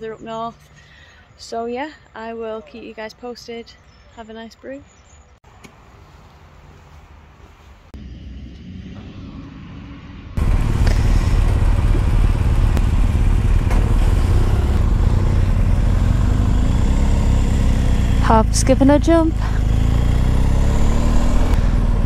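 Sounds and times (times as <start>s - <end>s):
motorcycle engine running: 10.4s - 22.0s.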